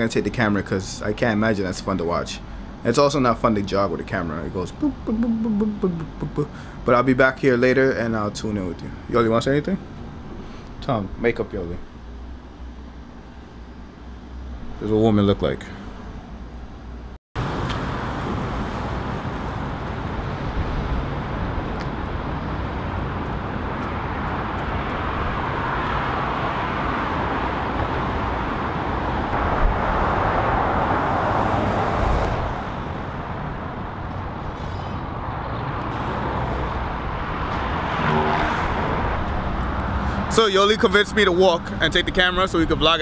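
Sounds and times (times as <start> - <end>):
road traffic roar: 0.0 - 43.0.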